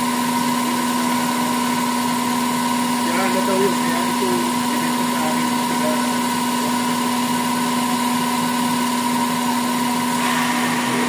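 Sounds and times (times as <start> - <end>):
high whine: 10.0 - 11.0
hiss: 10.2 - 11.0.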